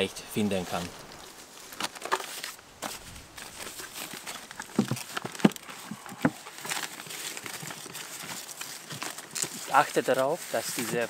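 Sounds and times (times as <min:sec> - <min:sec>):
plastic film crinkling: 0:01.1 - 0:11.0
wood knocking on wood: 0:04.6 - 0:06.4.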